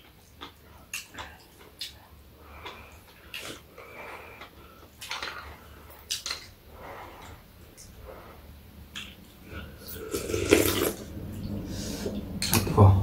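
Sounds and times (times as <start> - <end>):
chewing: 0.0 - 8.0
slurping soup: 9.5 - 11.1.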